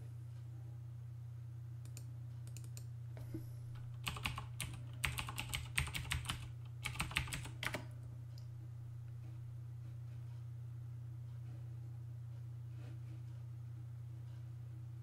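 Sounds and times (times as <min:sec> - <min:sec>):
steady low hum: 0:00.0 - 0:15.0
computer keyboard typing: 0:03.8 - 0:07.8.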